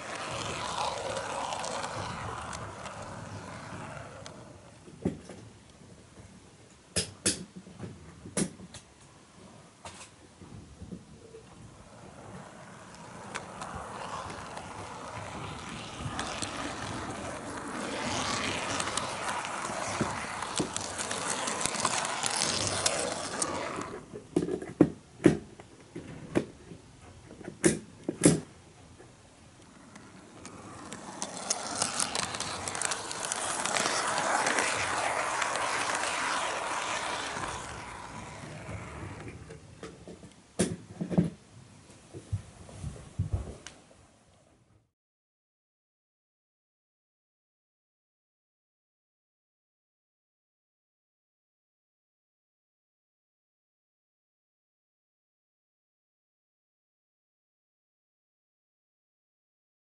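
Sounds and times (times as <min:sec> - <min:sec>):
model train wheels rattling: 0:00.0 - 0:04.5, 0:12.4 - 0:24.0, 0:30.0 - 0:39.0
wheels clicking over turnouts: 0:29.9 - 0:39.4.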